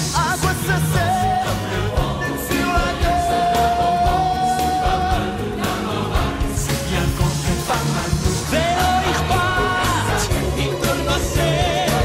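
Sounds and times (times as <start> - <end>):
person singing: 0.0 - 5.6
pop-rock band backing: 0.0 - 12.0.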